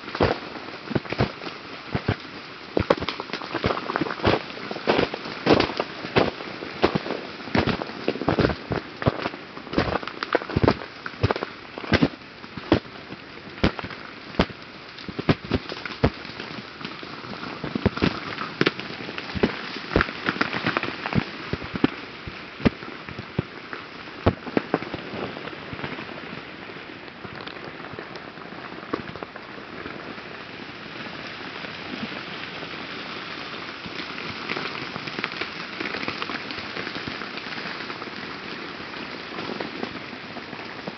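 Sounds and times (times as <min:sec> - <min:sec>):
steady ice patter: 0:00.0 - 0:26.1
ice cracking and clattering: 0:00.1 - 0:02.2, 0:02.8 - 0:12.9, 0:13.6 - 0:23.5.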